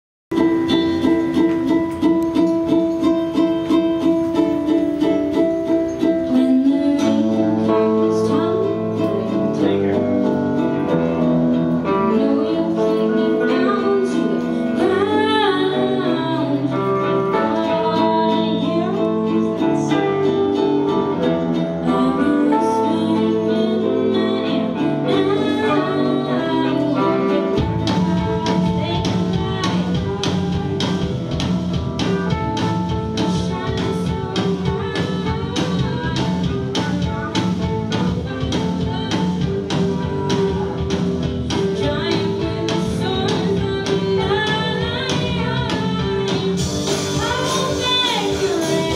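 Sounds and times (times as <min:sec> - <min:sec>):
strummed ukulele and guitars: 0:00.3 - 0:48.9
woman singing: 0:00.4 - 0:48.9
drum kit and bass beat: 0:27.6 - 0:48.9.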